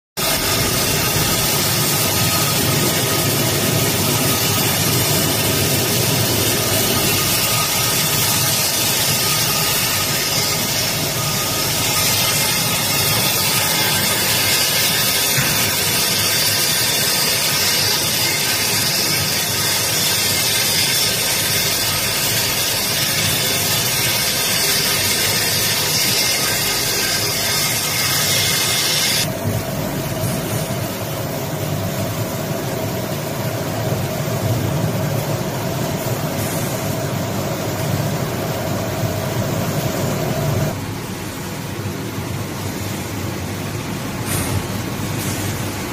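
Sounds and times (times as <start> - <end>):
grinding hiss on steel springs: 0.2 - 29.3
machine running hum: 0.2 - 45.9.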